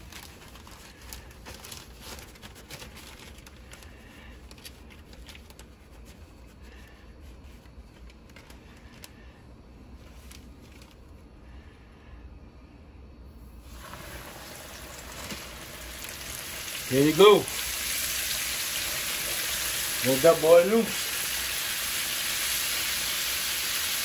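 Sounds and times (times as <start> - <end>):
plastic bag crinkling: 0.0 - 6.8, 9.9 - 11.2, 13.6 - 21.0.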